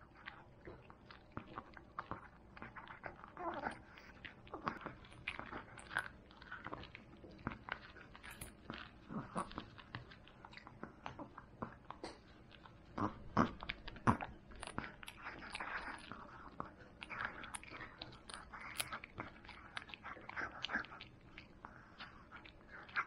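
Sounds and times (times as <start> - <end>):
dog crunching on bone: 0.0 - 23.0.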